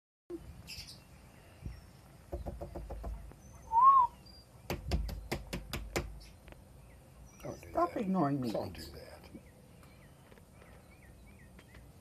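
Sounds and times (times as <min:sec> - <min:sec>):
rising and falling whistle: 0:03.7 - 0:04.2.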